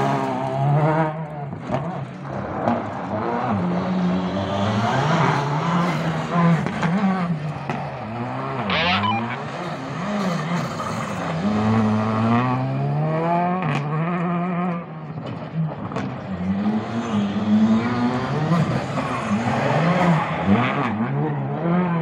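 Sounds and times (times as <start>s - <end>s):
rally car engine revving: 0.0s - 22.0s
brief high screech: 8.7s - 9.4s.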